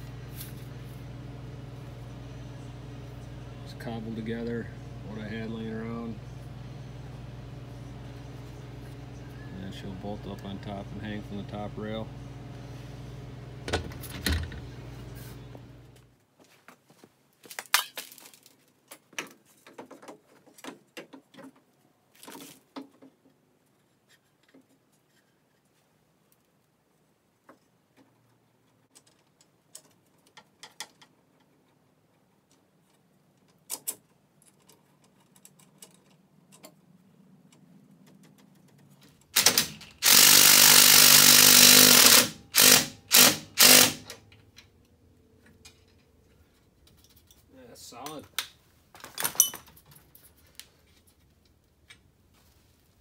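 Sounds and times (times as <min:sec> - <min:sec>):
cordless drill driving bolts: 0:39.4 - 0:44.2
metal parts clanking: 0:49.0 - 0:50.4.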